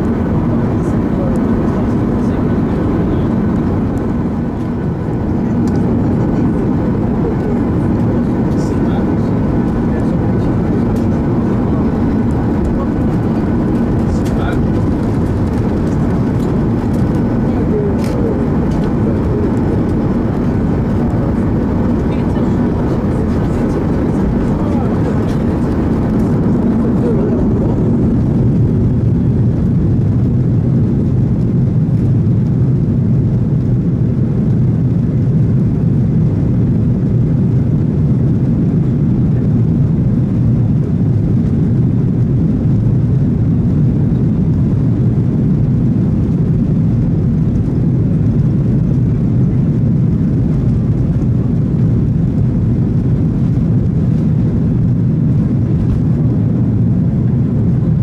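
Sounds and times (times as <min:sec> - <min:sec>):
jet engine roar in cabin: 0:00.0 - 0:58.0.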